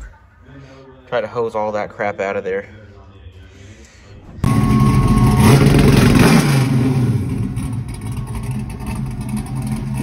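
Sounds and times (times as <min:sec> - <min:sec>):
car engine revving and idling: 0:04.4 - 0:10.0.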